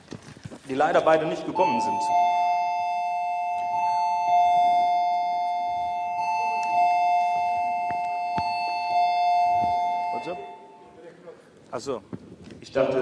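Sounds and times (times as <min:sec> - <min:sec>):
two-tone doorbell chime: 0:01.4 - 0:10.9.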